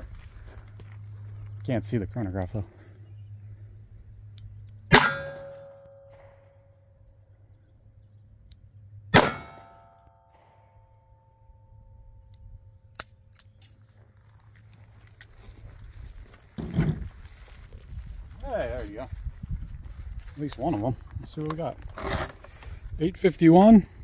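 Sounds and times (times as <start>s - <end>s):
metallic ring of steel target: 4.9s - 7.0s, 9.1s - 12.3s.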